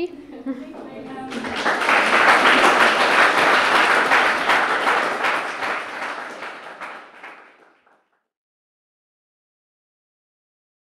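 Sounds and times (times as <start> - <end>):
audience applauding: 0.6 - 8.1.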